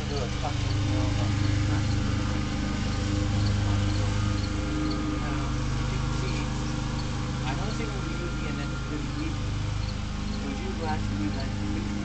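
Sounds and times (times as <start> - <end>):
small engine idling: 0.0 - 12.0.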